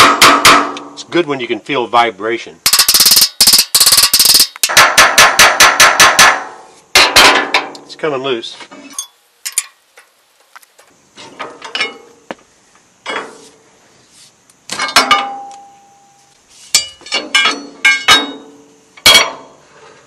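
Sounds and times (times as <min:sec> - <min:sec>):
steel bar clanking on metal: 0:16.7 - 0:19.6.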